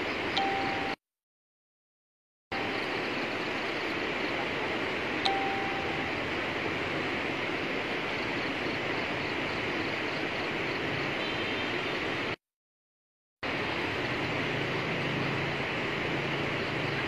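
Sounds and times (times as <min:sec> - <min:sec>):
short high beep: 0:05.3 - 0:06.1.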